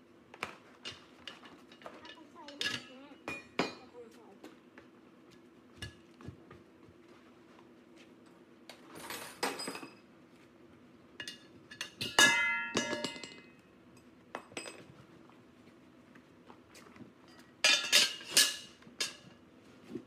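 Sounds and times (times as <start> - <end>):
metal objects clinking: 11.2 - 13.6, 17.3 - 19.2
loud ringing metal clang: 12.0 - 13.6.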